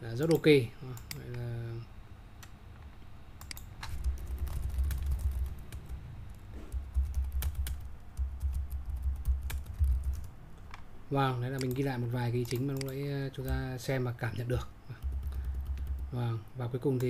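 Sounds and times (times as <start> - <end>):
keyboard typing clicks: 3.4 - 6.0, 6.7 - 10.8, 11.5 - 13.7, 15.0 - 16.2.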